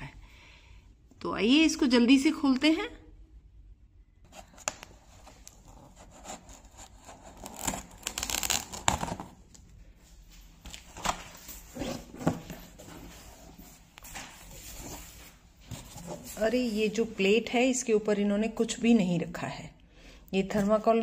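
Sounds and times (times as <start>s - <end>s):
packing tape tearing: 4.4s - 9.4s.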